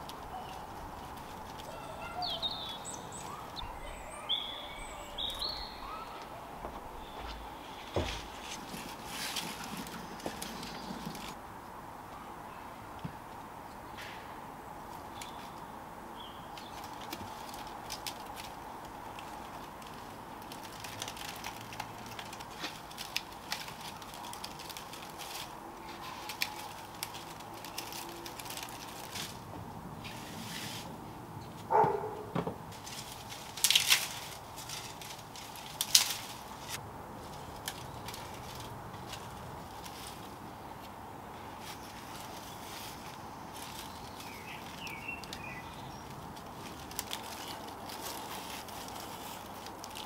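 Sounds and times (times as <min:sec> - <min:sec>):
dry palm leaves crackling: 0:00.0 - 0:11.4, 0:14.8 - 0:50.0.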